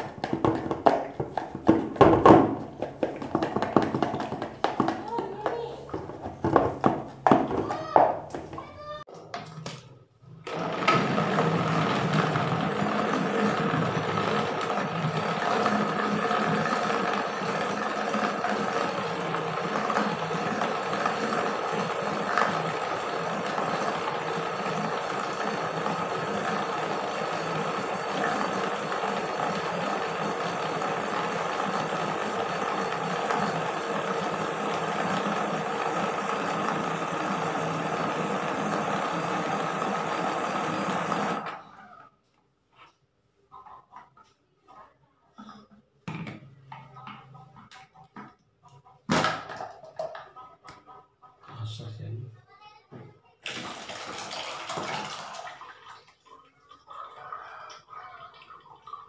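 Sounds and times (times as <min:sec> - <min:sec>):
blender motor running: 0:10.4 - 0:42.2, 0:53.5 - 0:55.6.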